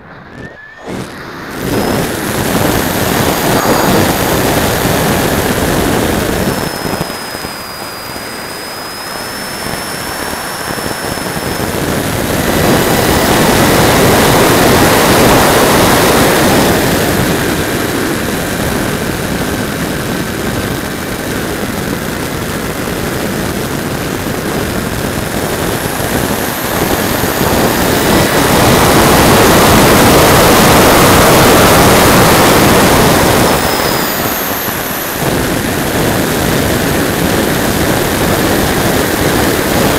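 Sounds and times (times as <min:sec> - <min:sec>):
wind rushing: 0:00.0 - 0:08.2
thin high rising tone: 0:00.0 - 0:14.2
high-pitched electric motor whine: 0:00.0 - 0:39.9.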